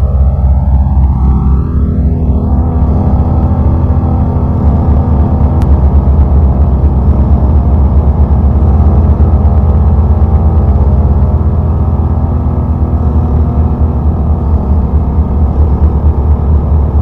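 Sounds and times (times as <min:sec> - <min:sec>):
low drone experimental music: 0:00.0 - 0:17.0.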